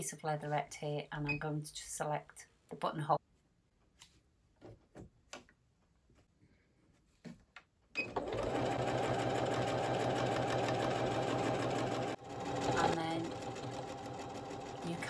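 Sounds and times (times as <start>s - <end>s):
sewing machine stitching: 8.0s - 15.0s.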